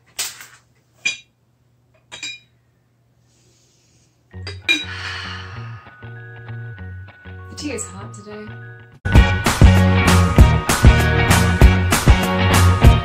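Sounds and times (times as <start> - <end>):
background music: 4.3 - 13.0
teapot lid clinking: 4.5 - 5.0.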